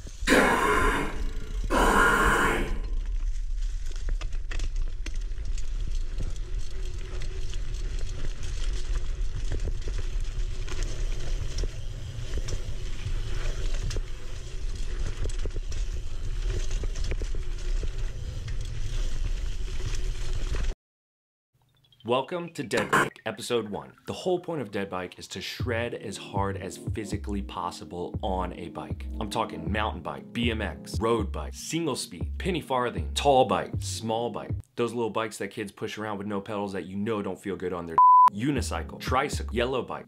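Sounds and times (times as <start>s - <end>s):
bike tyres rumbling on dirt: 2.9s - 20.7s
bike clicking and rattling: 3.3s - 20.7s.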